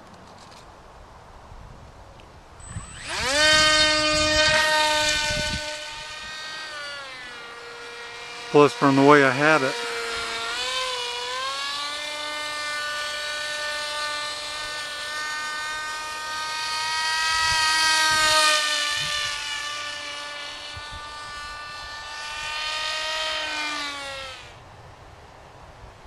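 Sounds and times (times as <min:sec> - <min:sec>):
model plane motor whining: 0:02.6 - 0:24.6.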